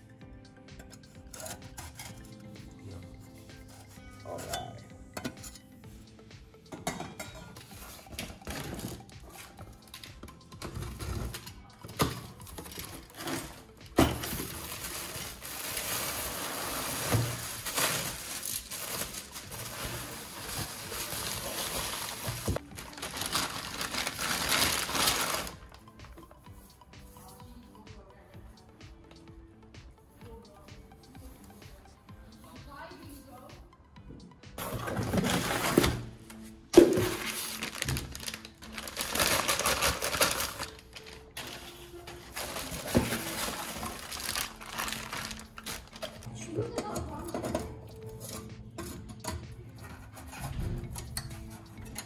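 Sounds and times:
plastic wrapping crinkling: 0:12.0 - 0:25.8, 0:36.8 - 0:46.3.

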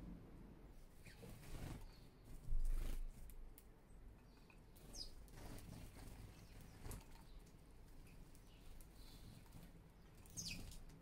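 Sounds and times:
bird wings fluttering: 0:01.0 - 0:03.5, 0:04.8 - 0:07.3.

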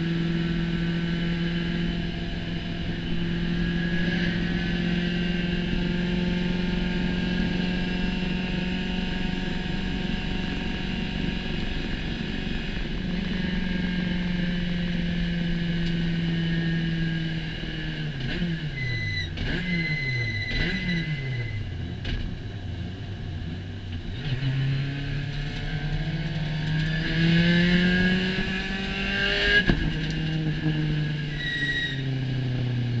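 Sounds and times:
race car engine revving: 0:00.0 - 0:13.8, 0:19.3 - 0:22.3, 0:24.0 - 0:32.0.

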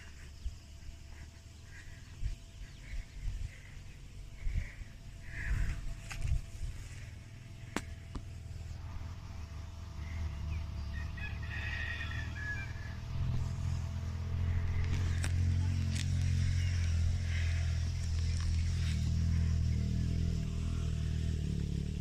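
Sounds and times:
low rumble: 0:00.0 - 0:11.0
rooster crowing: 0:10.8 - 0:13.2.

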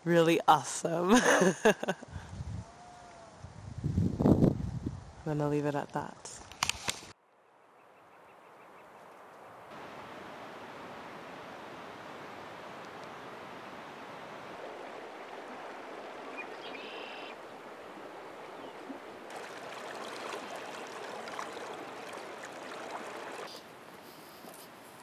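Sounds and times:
water rushing over rocks: 0:09.7 - 0:23.5.

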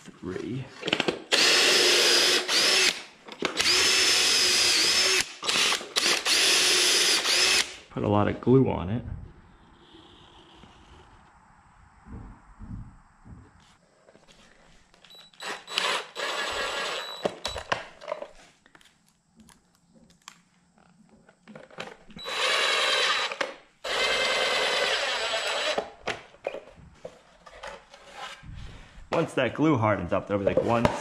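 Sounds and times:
impact driver driving screws: 0:00.9 - 0:07.8, 0:15.3 - 0:17.8, 0:22.2 - 0:25.9.

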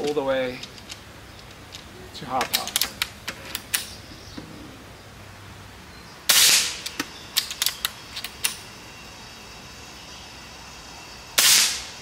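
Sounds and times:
air rifle shot crack: 0:06.3 - 0:06.8, 0:11.4 - 0:11.9.

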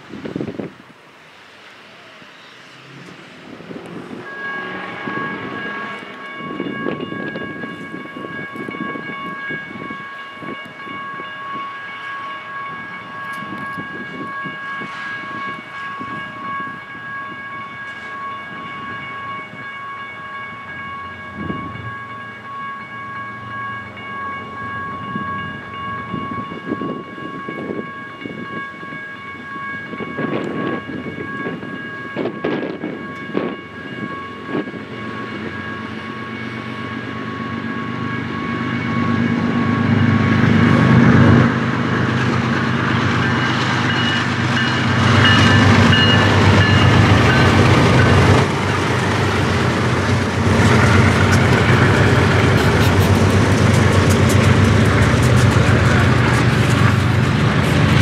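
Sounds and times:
locomotive engines rumbling: 0:00.0 - 0:58.0
train air horn: 0:04.2 - 0:06.2.

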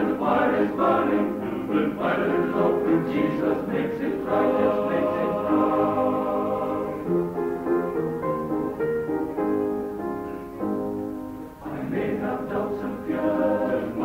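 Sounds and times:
male voice choir singing: 0:00.0 - 0:07.1, 0:11.6 - 0:14.0.

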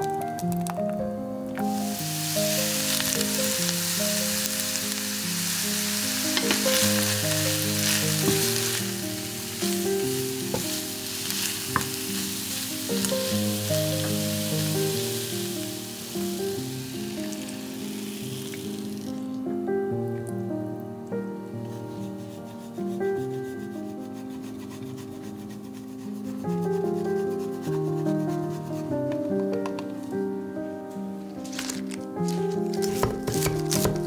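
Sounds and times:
background music: 0:00.0 - 0:34.0
vegetables sizzling in oil: 0:01.6 - 0:19.4
spatula scraping a pan: 0:06.2 - 0:13.2.

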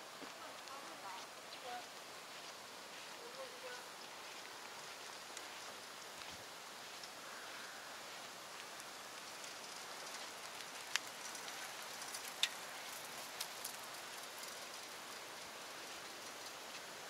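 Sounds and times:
faint outdoor hiss: 0:00.0 - 0:17.0
sharp ticks: 0:08.6 - 0:15.5.

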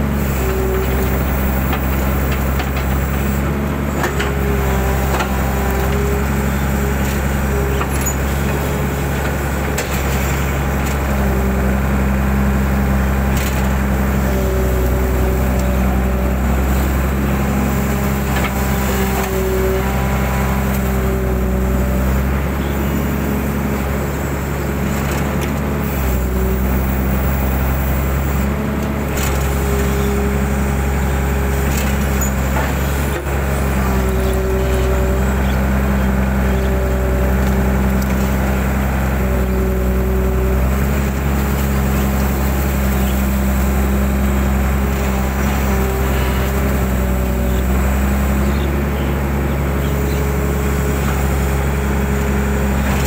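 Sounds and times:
excavator diesel engine running: 0:00.0 - 0:53.0.

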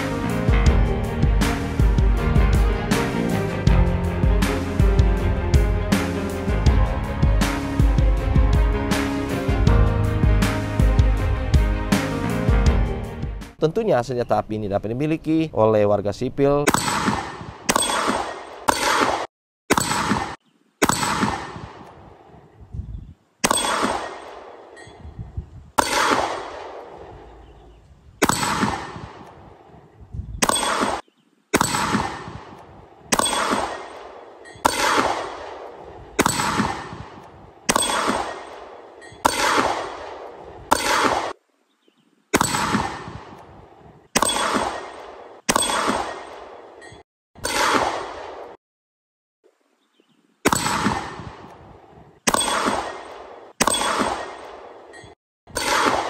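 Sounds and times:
pistol shots: 0:16.7 - 0:22.0, 0:23.4 - 0:24.8, 0:25.8 - 0:27.3, 0:28.2 - 0:29.5, 0:30.4 - 0:41.4, 0:42.3 - 0:43.5, 0:44.1 - 0:46.7, 0:47.4 - 0:48.6, 0:50.4 - 0:51.6, 0:52.3 - 0:54.8, 0:55.5 - 0:56.0.

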